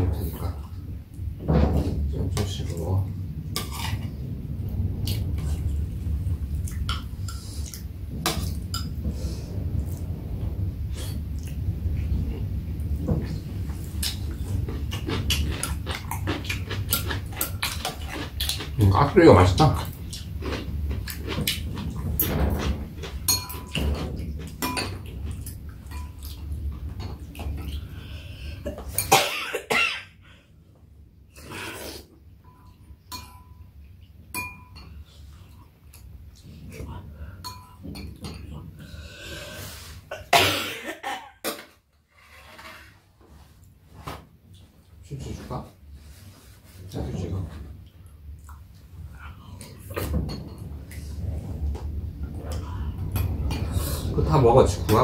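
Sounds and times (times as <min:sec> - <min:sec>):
low rumble: 0:00.0 - 0:29.1, 0:45.0 - 0:55.0
eating sounds: 0:13.8 - 0:24.6
utensils clinking on metal dishes: 0:14.8 - 0:26.4
person coughing: 0:29.1 - 0:30.2, 0:40.1 - 0:41.4
metal spoon clinking on bowl: 0:34.4 - 0:34.9.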